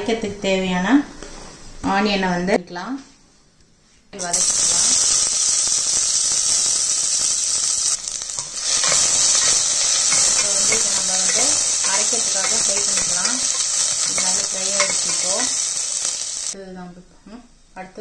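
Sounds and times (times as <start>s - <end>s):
onions sizzling in hot oil: 4.2s - 16.6s.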